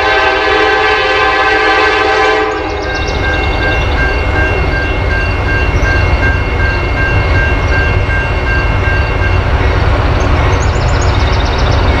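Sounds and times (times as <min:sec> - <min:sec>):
train horn blasts: 0:00.0 - 0:03.8
diesel locomotive rumble: 0:00.0 - 0:12.0.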